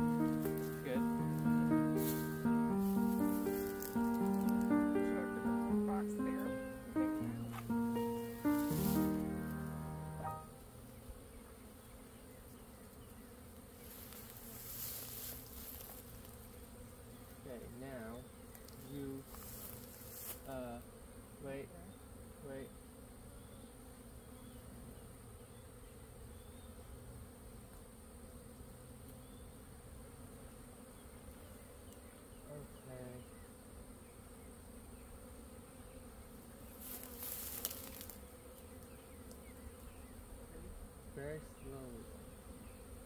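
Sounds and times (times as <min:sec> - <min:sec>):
bee swarm buzzing: 0:00.0 - 0:43.0.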